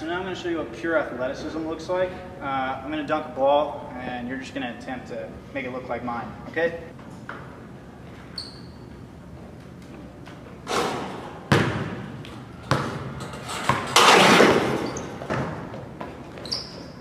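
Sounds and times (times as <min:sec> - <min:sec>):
basketball slams and thuds: 0:10.7 - 0:15.8.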